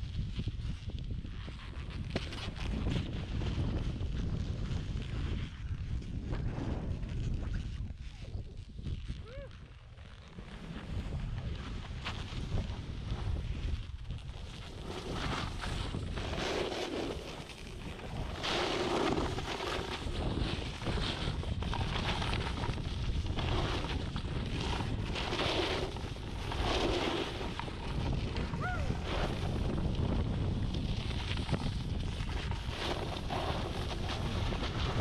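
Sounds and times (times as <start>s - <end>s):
wind buffeting microphone: 0.0s - 35.0s
snowboard hissing through powder: 14.8s - 21.4s.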